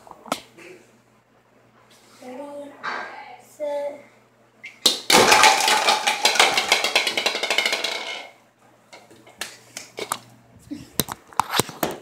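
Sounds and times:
ball rolling on tiled floor: 5.1 - 9.4.

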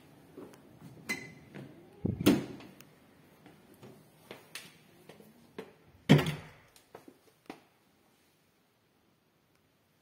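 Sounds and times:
door knocks and clunks: 6.1 - 6.6.

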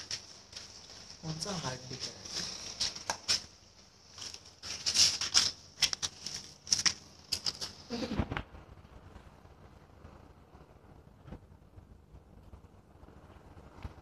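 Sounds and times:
matches fizzing and crackling: 0.0 - 8.1.

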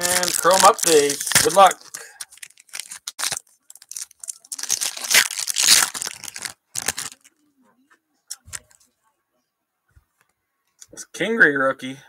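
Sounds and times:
wrapper tearing and crinkling: 0.0 - 7.3.

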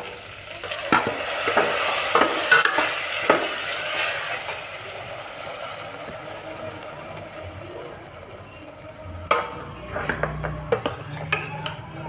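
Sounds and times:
vegetables sizzling in oil: 0.0 - 12.0
ladle scraping a metal pot: 9.3 - 12.0.

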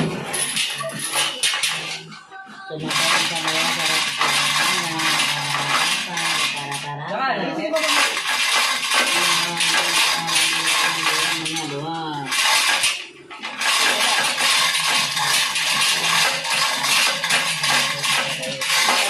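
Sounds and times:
chain clinking and rattling: 0.0 - 2.1, 2.8 - 6.9, 7.8 - 19.0
faint voice or music: 0.2 - 7.6.

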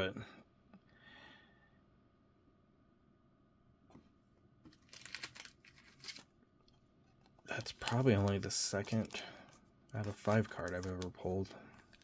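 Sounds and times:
plastic card sleeves crinkling: 4.7 - 6.4, 7.2 - 12.0.

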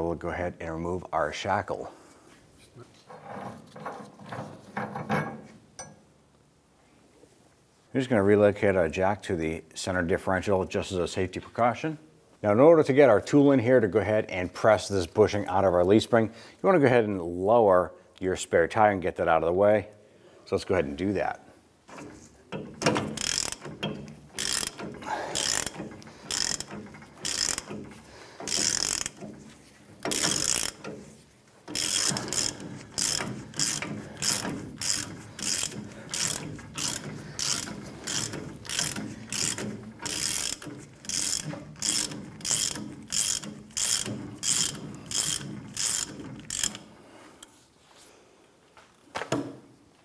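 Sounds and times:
hand ratchet clicking: 21.9 - 46.9.

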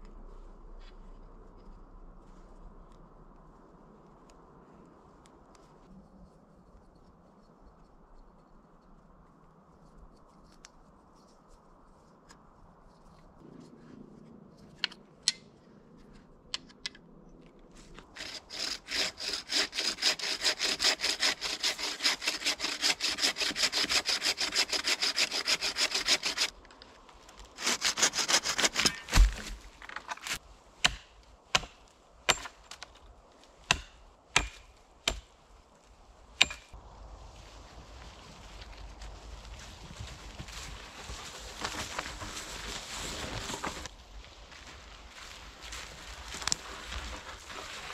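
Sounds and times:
hand saw cutting wood: 18.1 - 26.6, 27.6 - 32.6, 33.7 - 35.3, 36.4 - 36.8.

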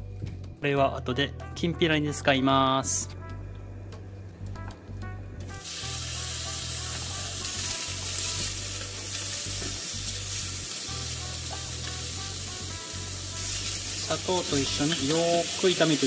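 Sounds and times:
food sizzling in hot oil: 5.5 - 16.0.

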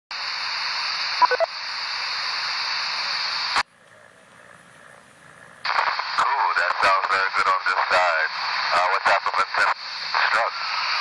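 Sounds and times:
radio static hiss: 0.1 - 11.0
brief tone blips: 1.2 - 1.5.

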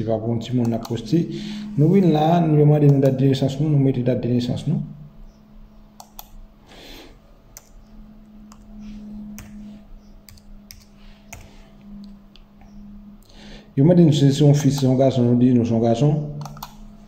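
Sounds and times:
steady low hum: 0.0 - 17.0
mouse and keyboard clicks: 6.0 - 6.4, 16.4 - 16.8.

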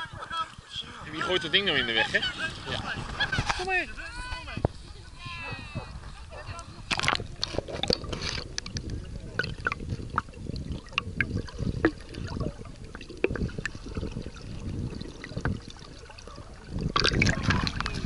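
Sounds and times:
muffled underwater gurgling: 4.6 - 18.0.

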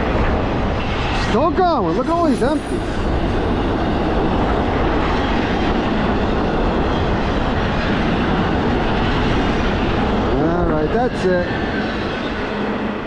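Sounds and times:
train wheels on rail: 0.0 - 13.0.

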